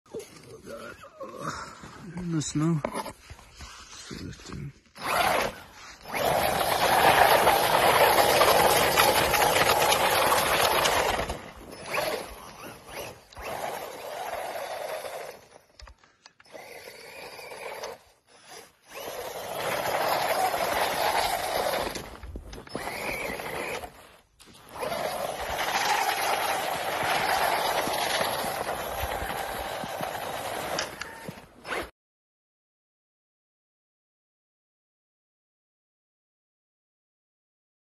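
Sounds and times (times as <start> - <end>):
tyres churning snow: 0.2 - 15.8, 16.4 - 31.9
electric motor whirring: 5.0 - 31.9.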